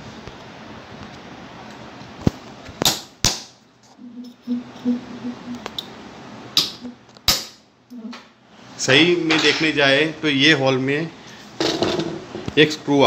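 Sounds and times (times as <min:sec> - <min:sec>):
metal punch striking metal: 0:06.6 - 0:07.6.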